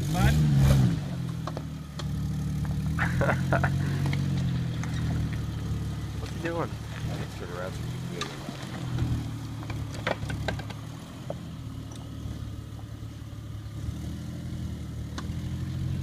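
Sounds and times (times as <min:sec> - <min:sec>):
car engine running at low revs: 0:00.0 - 0:16.0
sharp clicks and knocks: 0:08.2 - 0:12.1.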